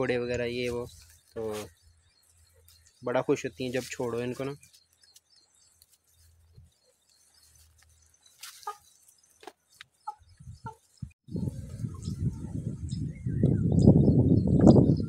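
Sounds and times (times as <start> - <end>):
hens clucking: 8.4 - 8.9.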